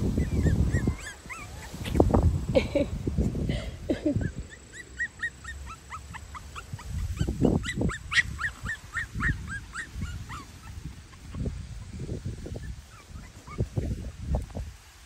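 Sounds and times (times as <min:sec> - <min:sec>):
puppies whimpering: 0:00.0 - 0:02.2, 0:03.9 - 0:14.1
low rustles: 0:00.0 - 0:04.5.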